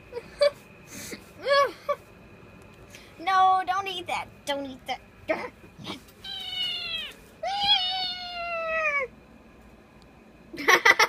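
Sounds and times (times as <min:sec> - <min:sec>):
person laughing: 0:00.1 - 0:00.6, 0:10.6 - 0:11.0
cat meowing: 0:06.2 - 0:09.1.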